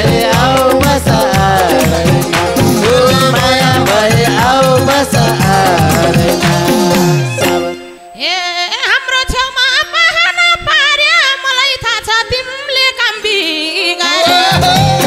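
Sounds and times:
band playing: 0.0s - 8.2s, 14.2s - 15.0s
sliding solo lead melody: 1.4s - 8.2s.

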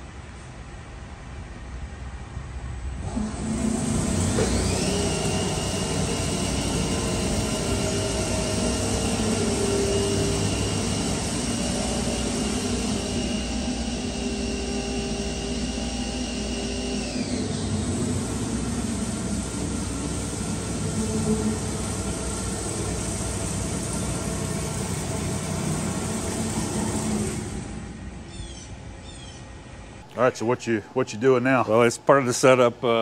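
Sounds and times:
mechanical hum: 0.0s - 33.0s
electric motor whine: 3.0s - 28.0s.

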